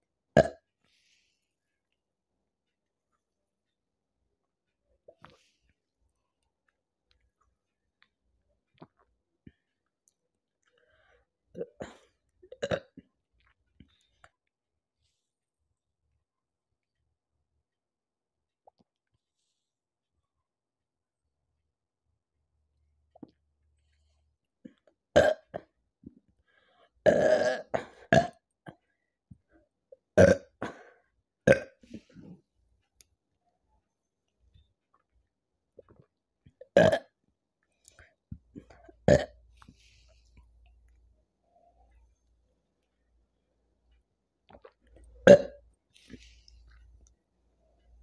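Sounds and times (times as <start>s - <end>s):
burps: 0.4s - 0.7s, 11.5s - 13.1s, 25.2s - 25.7s, 27.0s - 28.4s, 30.2s - 32.3s, 36.6s - 37.2s, 38.6s - 39.4s, 44.5s - 45.6s
woman sipping and swallowing: 35.7s - 37.2s, 44.4s - 47.2s.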